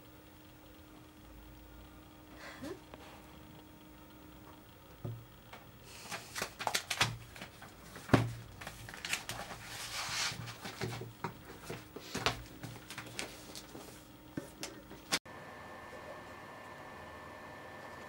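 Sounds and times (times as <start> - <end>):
book pages rustling: 5.9 - 15.2.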